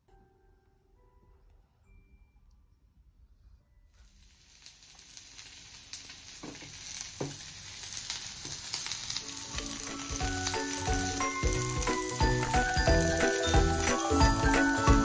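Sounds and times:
light jingly music: 0.0s - 4.0s, 9.2s - 15.0s
food sizzling on grill pan: 4.0s - 15.0s.

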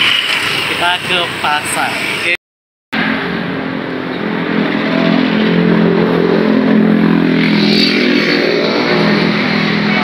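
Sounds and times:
vehicle engine passing: 3.0s - 10.0s.

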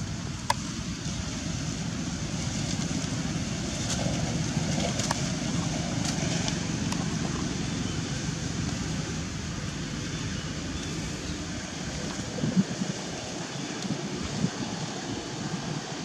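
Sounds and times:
wind rumble on microphone: 0.0s - 16.0s
faint clicks and crackles: 3.8s - 7.6s.

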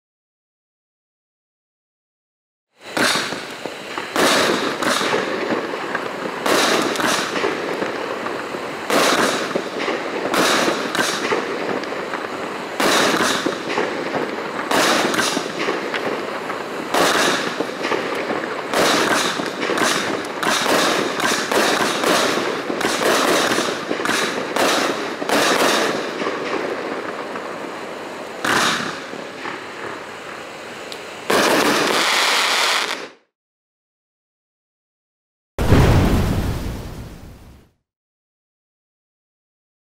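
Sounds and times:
firework crackling: 2.8s - 33.2s
firework reports: 2.8s - 33.2s, 35.6s - 37.7s.

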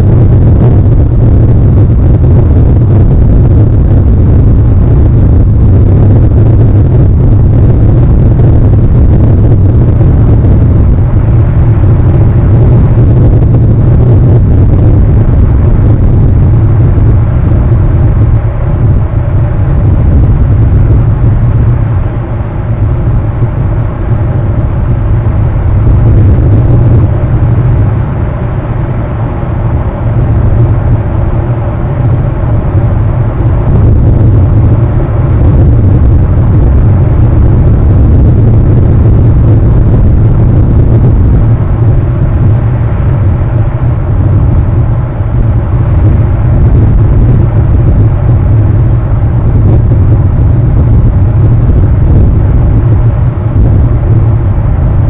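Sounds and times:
wind and surf rumble: 0.0s - 55.0s.

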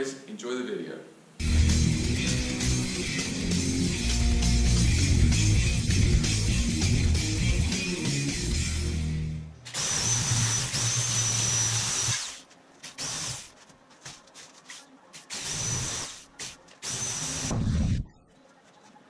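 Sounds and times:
intro music: 1.4s - 9.5s
electric metal cutter whining: 9.7s - 12.4s.

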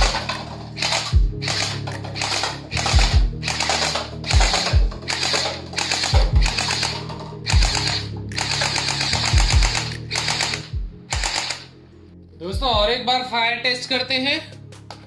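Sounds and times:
toy blaster firing bursts: 0.0s - 11.7s
music with deep bass hits: 0.0s - 11.8s.

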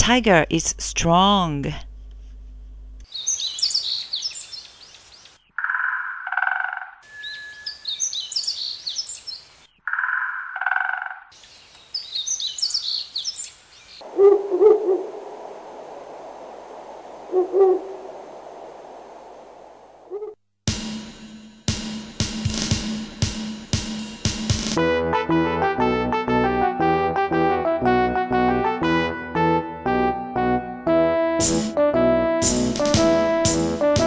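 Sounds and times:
high fluttering bird-like chirping: 3.1s - 15.0s
low rough animal call: 14.0s - 15.2s, 20.1s - 20.4s
low hoots: 14.0s - 15.8s, 17.1s - 18.5s, 20.0s - 20.4s.

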